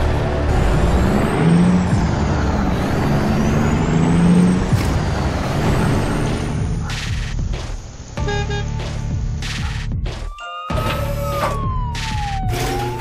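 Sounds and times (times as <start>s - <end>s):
truck engine running: 0.0s - 10.2s.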